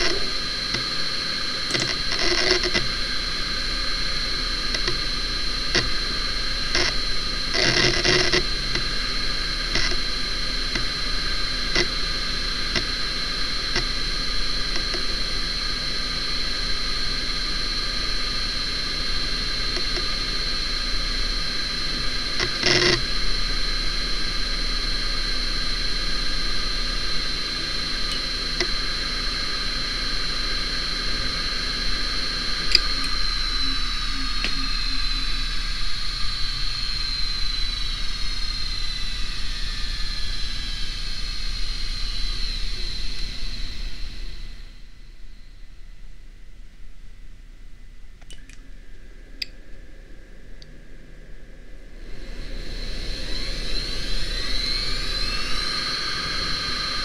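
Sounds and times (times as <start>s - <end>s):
hard drive seek clicks: 0.0s - 15.6s, 18.0s - 24.3s, 25.3s - 36.5s
hard drive whine: 0.0s - 57.0s.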